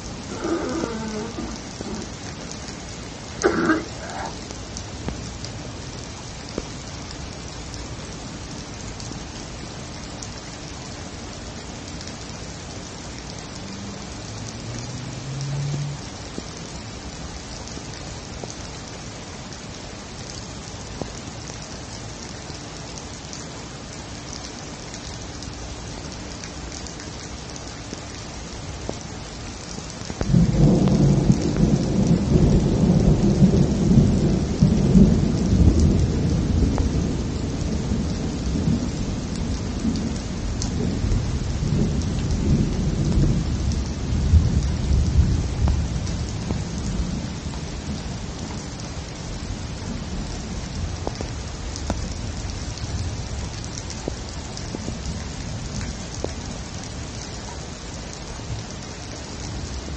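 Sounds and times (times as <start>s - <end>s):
thunder rumbling: 0.0s - 4.5s
rain hissing: 0.0s - 59.9s.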